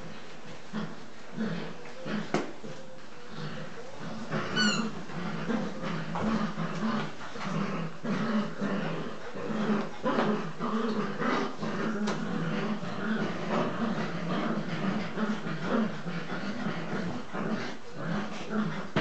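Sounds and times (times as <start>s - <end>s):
puppies growling in play: 0.0s - 19.0s.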